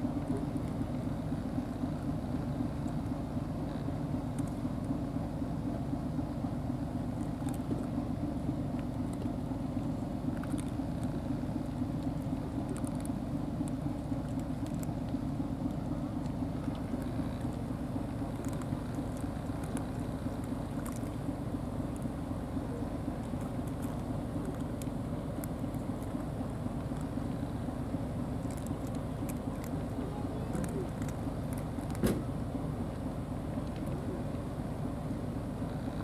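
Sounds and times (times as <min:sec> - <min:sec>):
low mechanical hum: 0:00.0 - 0:36.0
faint ticks: 0:02.0 - 0:05.0.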